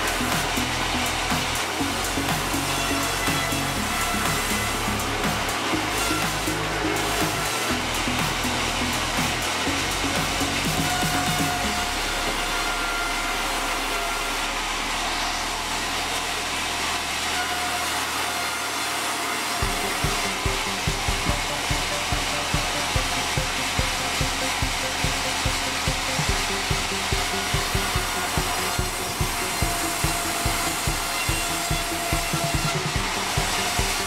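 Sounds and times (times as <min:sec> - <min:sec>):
band saw whirring hiss: 0:00.0 - 0:34.0
low thumps: 0:19.6 - 0:34.0.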